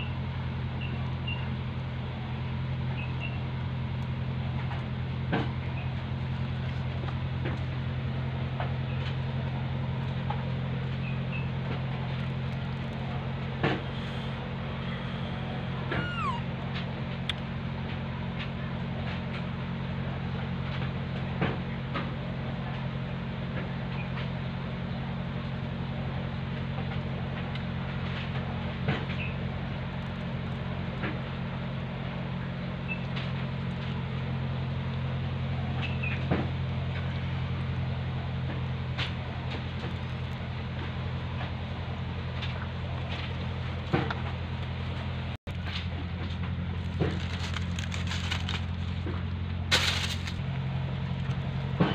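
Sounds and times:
machine humming: 0:10.8 - 0:17.9.

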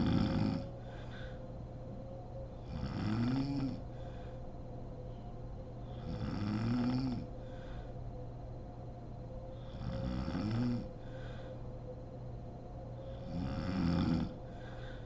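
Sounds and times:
woman snoring: 0:00.0 - 0:01.0, 0:02.6 - 0:03.9, 0:05.8 - 0:07.3, 0:09.6 - 0:11.2, 0:13.1 - 0:14.8
soft breath: 0:00.0 - 0:02.8, 0:03.7 - 0:06.2, 0:07.2 - 0:08.6, 0:10.8 - 0:13.4, 0:14.2 - 0:15.0
faint steady hum: 0:00.0 - 0:15.0.

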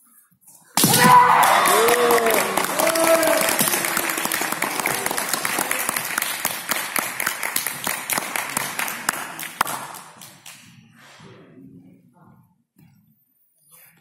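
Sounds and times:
spectators clapping: 0:01.1 - 0:10.6.

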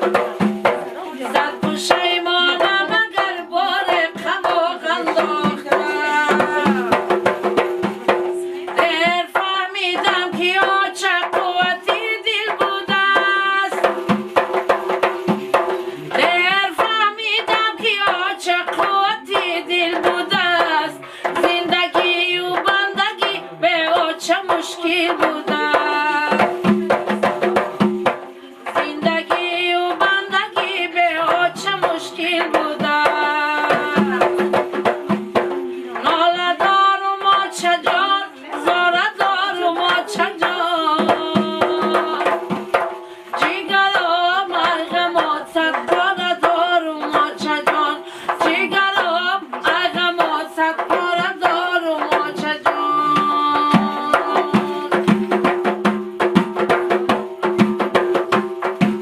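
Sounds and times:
woman singing with vibrato: 0:00.0 - 0:14.3, 0:15.5 - 0:34.9, 0:35.8 - 0:55.6
frame drums struck by hand: 0:00.0 - 0:59.0.

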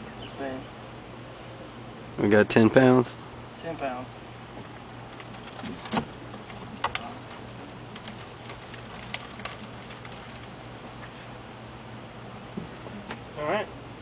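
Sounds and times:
faint steady hum: 0:00.0 - 0:14.0
sharp clicks and knocks: 0:04.6 - 0:10.5.

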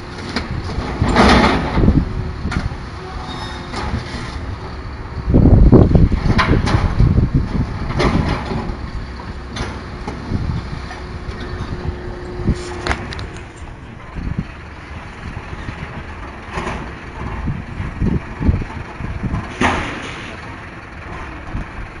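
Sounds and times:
truck engine running: 0:00.0 - 0:22.0
lifter mechanism humming: 0:08.6 - 0:16.2.

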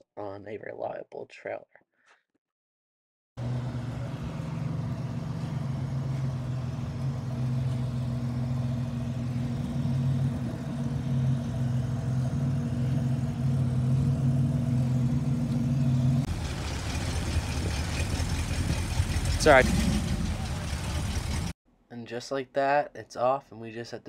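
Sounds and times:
diesel truck engine idling: 0:03.4 - 0:21.6.

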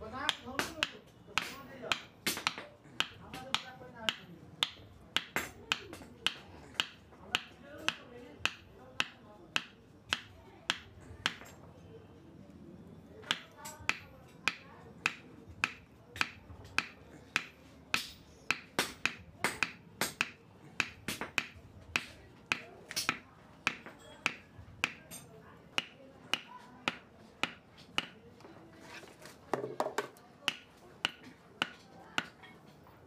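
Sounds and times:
wooden handle knocking on anvil: 0:13.2 - 0:28.2, 0:29.5 - 0:32.8.

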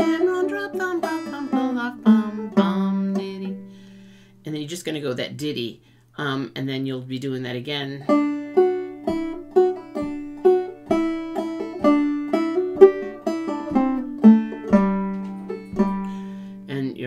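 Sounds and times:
banjo plucked notes: 0:00.0 - 0:04.2, 0:07.9 - 0:16.9.

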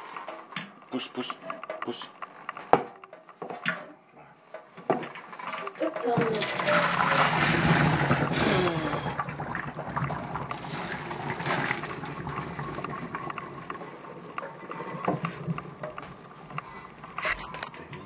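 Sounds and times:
water pouring into sink: 0:05.4 - 0:17.2
water trickling and dripping: 0:05.4 - 0:17.2.

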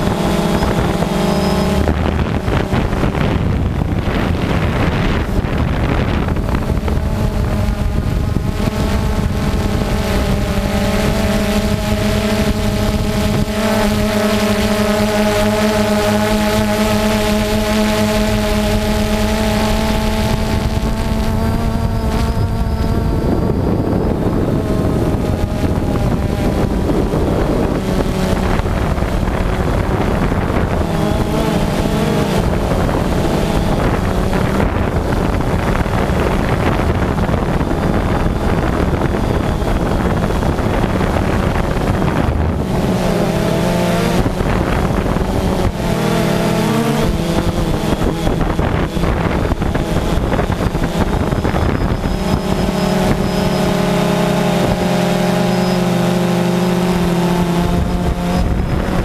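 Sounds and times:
drone propellers whirring: 0:00.0 - 0:59.0
wind rushing over microphone: 0:00.0 - 0:59.0.

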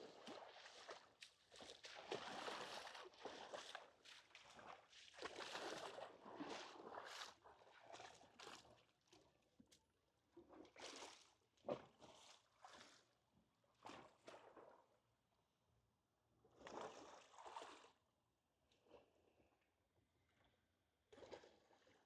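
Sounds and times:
small waves lapping on a beach: 0:00.0 - 0:09.2.

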